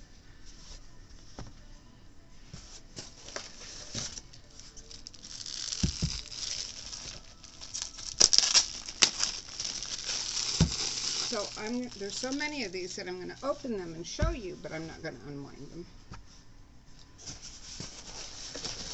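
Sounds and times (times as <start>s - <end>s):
plastic sleeve crinkling: 3.0s - 14.4s, 17.3s - 18.9s
sharp plastic crackles: 3.2s - 12.6s.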